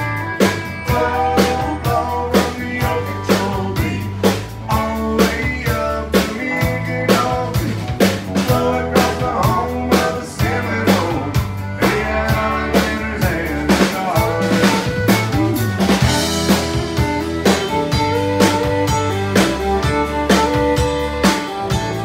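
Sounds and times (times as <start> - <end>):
country band playing: 0.0 - 22.0
drum kit beat: 0.0 - 22.0
fiddle: 8.7 - 22.0.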